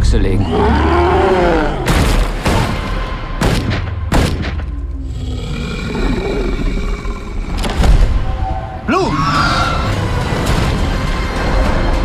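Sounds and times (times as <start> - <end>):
creature roar: 0.4 - 1.9, 5.0 - 7.5.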